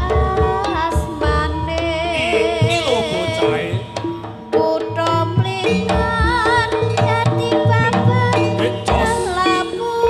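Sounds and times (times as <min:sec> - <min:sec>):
wavering high melody: 0:02.2 - 0:05.1.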